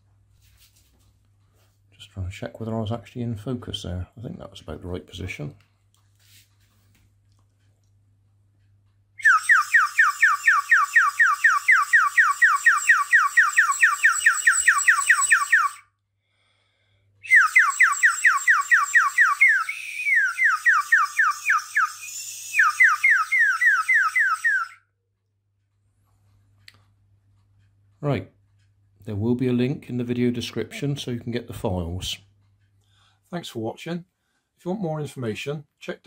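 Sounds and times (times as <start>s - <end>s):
water bird whistle warbling: 9.2s - 15.8s, 17.2s - 24.8s.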